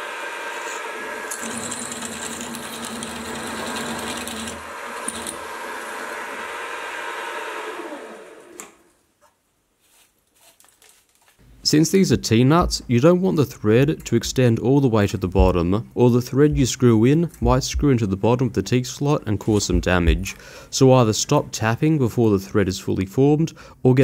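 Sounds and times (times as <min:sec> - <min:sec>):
drill boring into steel: 0:00.0 - 0:08.8
mill spindle motor running: 0:00.0 - 0:08.9.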